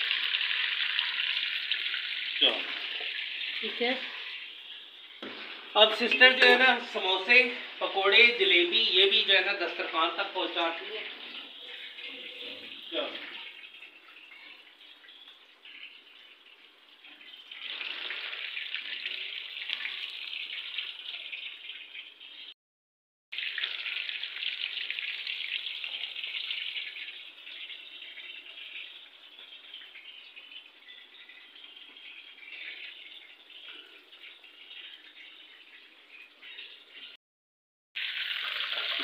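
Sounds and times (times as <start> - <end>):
chicken sizzling in hot oil: 0.0 - 7.6, 10.2 - 22.6, 23.3 - 37.1, 38.0 - 39.0.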